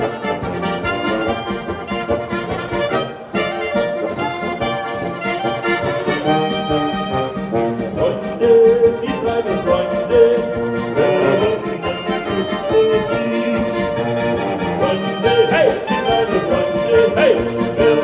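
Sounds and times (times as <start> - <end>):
button accordion: 0.0 - 18.0
clarinet: 0.0 - 18.0
trumpet: 0.0 - 18.0.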